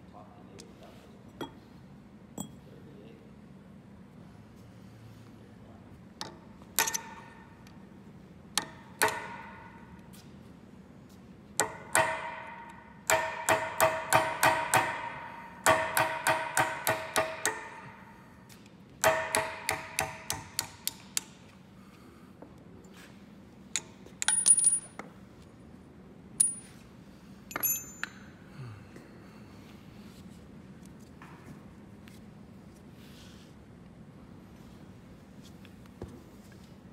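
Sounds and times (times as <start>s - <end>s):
metal-on-metal taps ringing: 2.4s - 2.6s, 27.5s - 28.3s
light high metal clinks: 27.5s - 28.3s.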